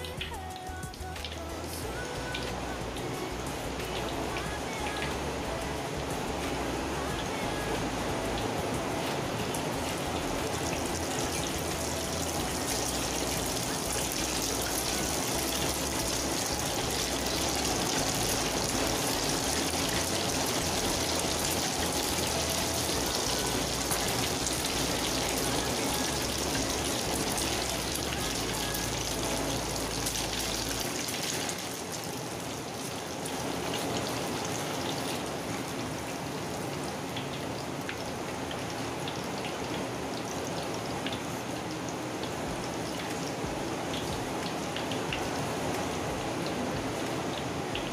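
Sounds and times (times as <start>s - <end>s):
batter sizzling in hot oil: 6.4s - 36.2s.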